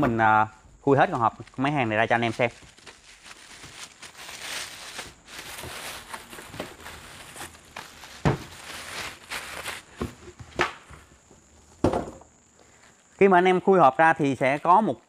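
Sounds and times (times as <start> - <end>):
plastic wrap rustling: 1.3 - 10.5
machine thump on wooden bench: 11.8 - 12.2.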